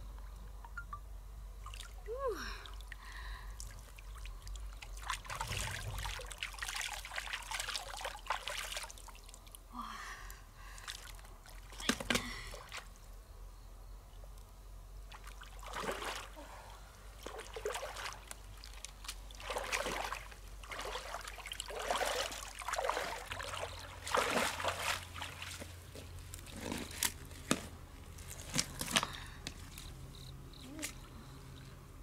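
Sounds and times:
stream water sloshing and splashing: 0:01.6 - 0:09.7, 0:10.7 - 0:12.9, 0:15.1 - 0:27.3.

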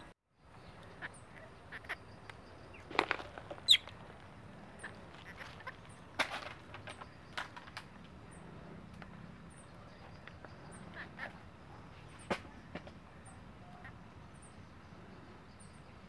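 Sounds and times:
monkey squeaking: 0:03.6 - 0:03.9.

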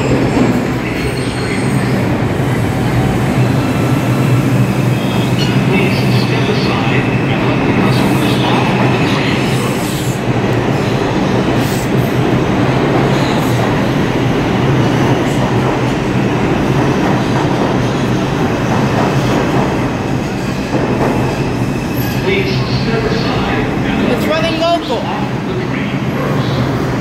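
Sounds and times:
subway train wheels on rails: 0:00.0 - 0:27.0.

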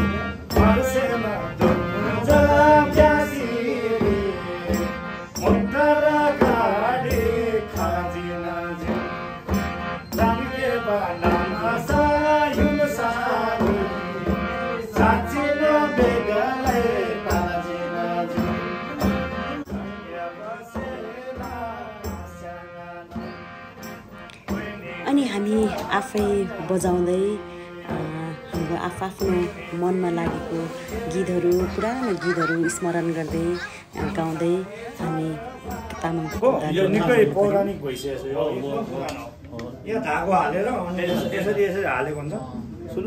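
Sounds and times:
harmonium chords: 0:00.0 - 0:38.5
voices singing: 0:00.0 - 0:42.2
frame drum beats: 0:08.8 - 0:17.6, 0:25.4 - 0:37.0.

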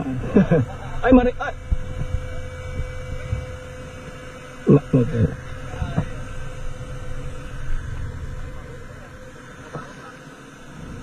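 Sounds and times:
low steady rumble: 0:00.0 - 0:11.0
thin steady hum: 0:00.0 - 0:11.0
voices: 0:00.0 - 0:11.0.

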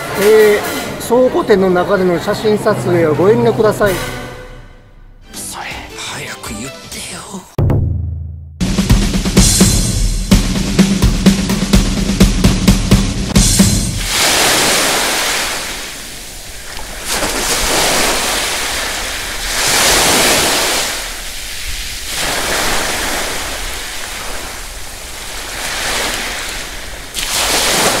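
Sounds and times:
ocean waves washing: 0:08.6 - 0:28.0.

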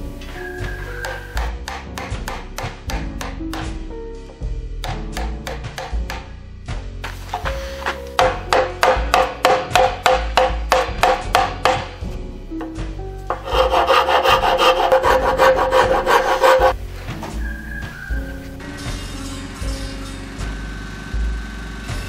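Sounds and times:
quiet background music: 0:00.0 - 0:22.0
rasp scraping wood: 0:13.3 - 0:16.8.

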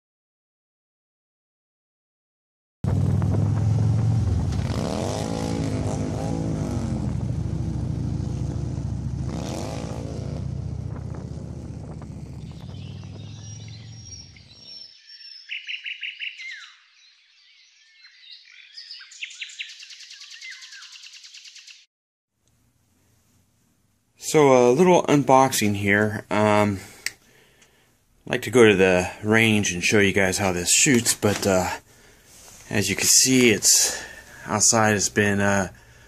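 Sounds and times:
motorcycle engine running: 0:02.8 - 0:14.6
birds chirping and singing: 0:12.2 - 0:21.8.

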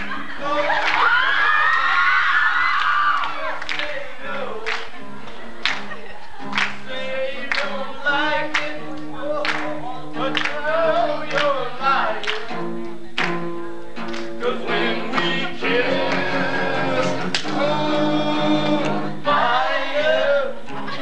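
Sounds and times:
acoustic guitar chords: 0:00.0 - 0:01.0, 0:03.4 - 0:21.0
person singing: 0:14.4 - 0:21.0.

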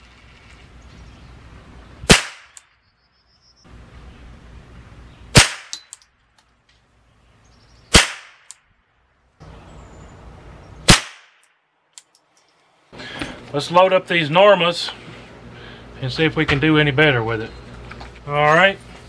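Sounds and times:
rifle shots: 0:02.1 - 0:02.6, 0:05.3 - 0:05.8, 0:07.9 - 0:08.5, 0:10.8 - 0:11.5.

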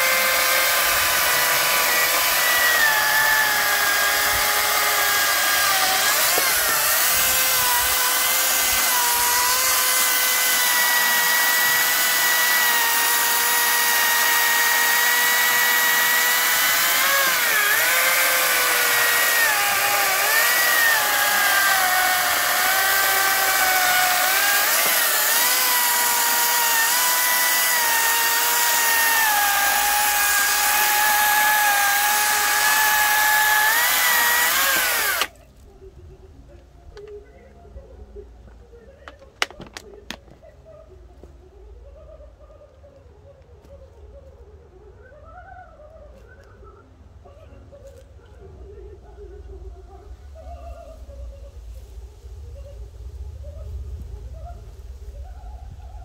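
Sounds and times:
electric chainsaw cutting log: 0:00.0 - 0:35.4.

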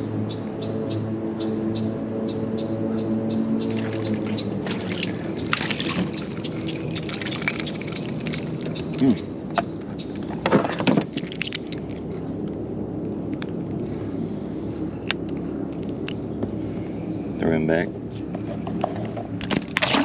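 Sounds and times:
fish splashing at surface: 0:03.7 - 0:09.0
knocks and rattles: 0:03.7 - 0:12.2.

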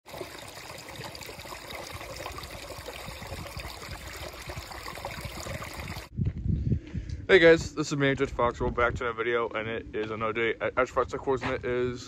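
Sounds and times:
brook trickling and splashing: 0:00.0 - 0:06.1.

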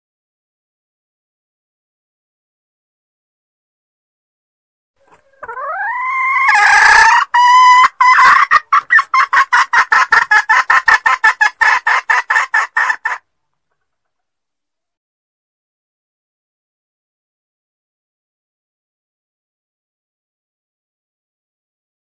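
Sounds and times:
hen calling with sharp clucks: 0:05.0 - 0:13.9.

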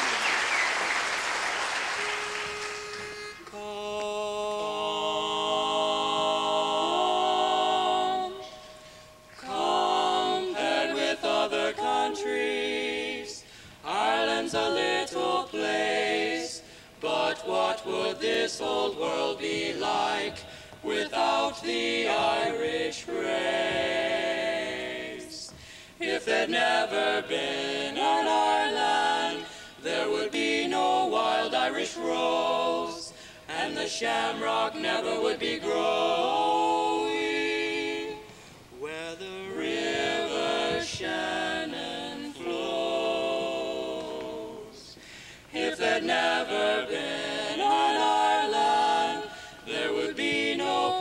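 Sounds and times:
applause: 0:00.0 - 0:03.5
male quartet singing in harmony: 0:02.1 - 0:51.0.

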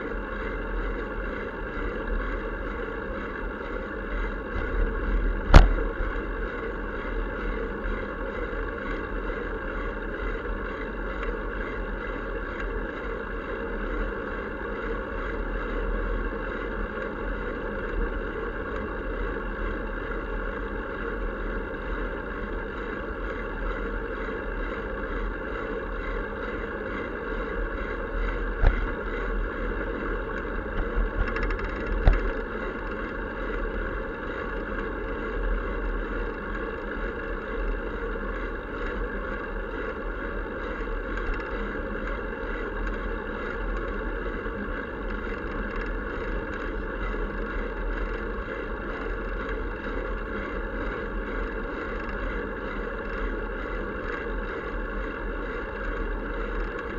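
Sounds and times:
bicycle rolling on pavement: 0:25.5 - 0:33.6.

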